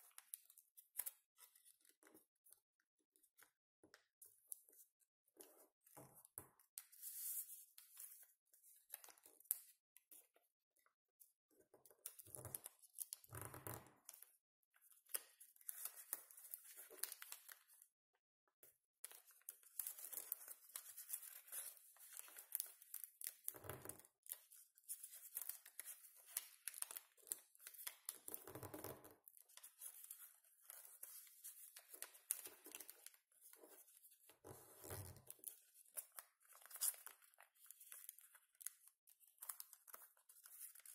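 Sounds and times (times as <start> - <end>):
paper rustling and crinkling: 15.6 - 17.8, 19.0 - 23.5, 24.2 - 28.4, 29.5 - 40.9.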